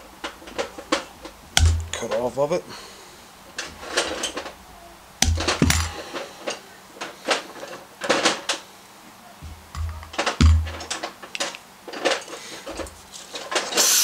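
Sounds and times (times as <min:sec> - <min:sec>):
metallic clatter of hand tools: 0:05.2 - 0:08.6
tools set down on workbench: 0:05.2 - 0:08.6, 0:09.4 - 0:13.9.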